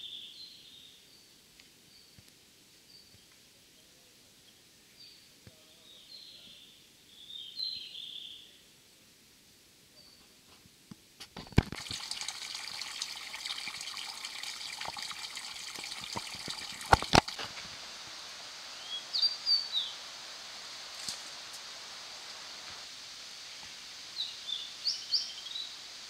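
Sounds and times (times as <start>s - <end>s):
water splashing into rock pool: 11.4s - 18.0s
bird chirping: 18.7s - 20.1s, 24.1s - 25.8s.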